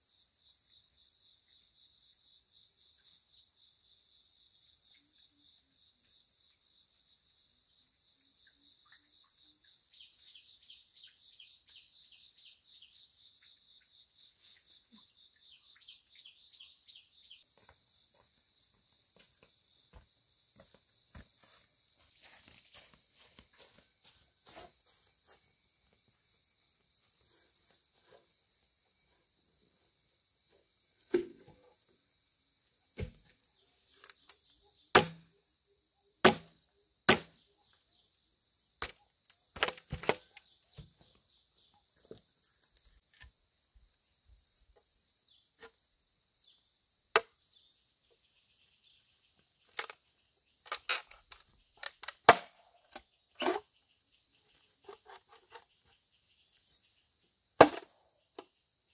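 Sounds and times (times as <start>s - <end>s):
insects chirring: 0.0s - 58.9s
sharp knocks or chops: 35.0s - 35.2s, 36.2s - 36.5s, 37.1s - 37.3s.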